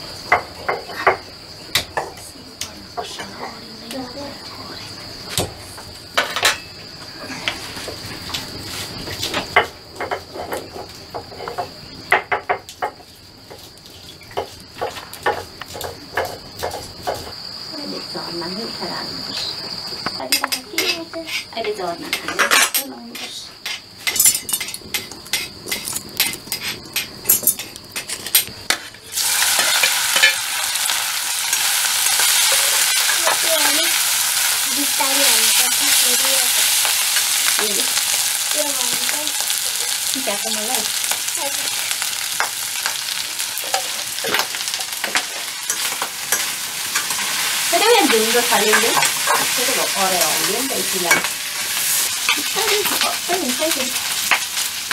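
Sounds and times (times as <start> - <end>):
food sizzling in a wok: 0.0 - 54.9
high insect trill: 0.0 - 54.9
kitchen utensils clicking: 47.8 - 51.3.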